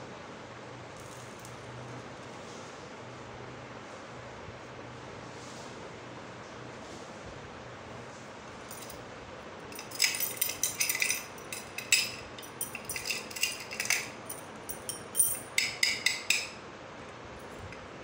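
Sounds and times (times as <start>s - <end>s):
keys set down on tile floor: 1.0s - 1.7s, 8.7s - 9.0s, 9.7s - 16.6s
keys and padlock jingling: 8.7s - 9.0s, 9.7s - 16.6s.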